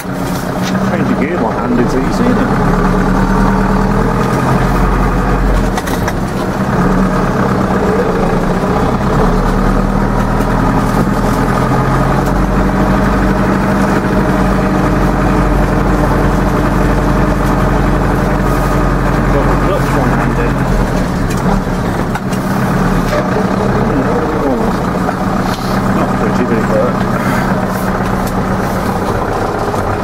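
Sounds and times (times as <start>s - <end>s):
tractor diesel engine running: 0.0s - 30.0s.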